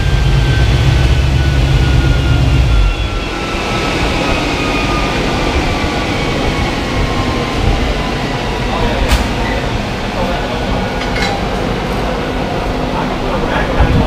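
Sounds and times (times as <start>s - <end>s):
engine low rumble: 0.0s - 4.9s
dyno rollers whining down: 0.0s - 14.0s.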